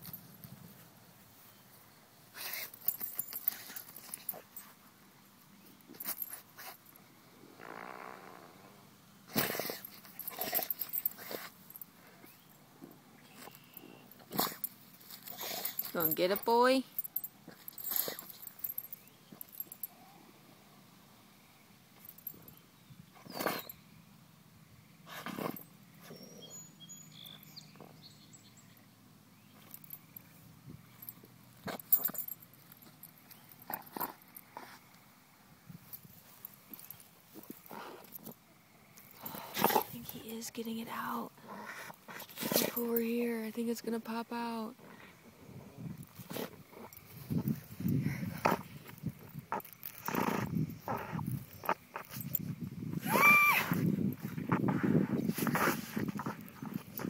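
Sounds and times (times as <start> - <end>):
dog sniffing and snuffling: 2.3 - 5.0, 5.6 - 7.0, 9.3 - 19.9, 25.0 - 26.6, 31.0 - 35.0, 36.0 - 38.4, 39.0 - 43.3, 45.9 - 52.5, 53.7 - 57.0.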